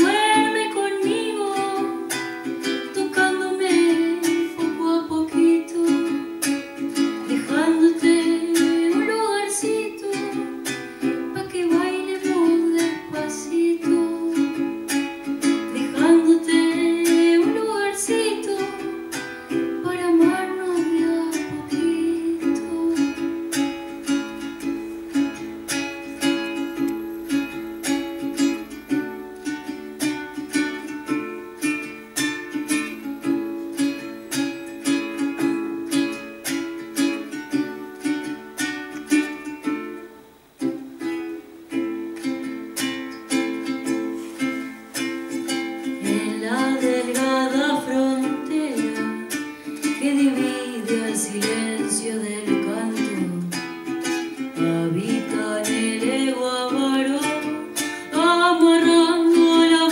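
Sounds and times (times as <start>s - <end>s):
woman singing: 0.0s - 24.3s, 45.8s - 59.9s
acoustic guitar plucked and strummed: 0.0s - 59.9s.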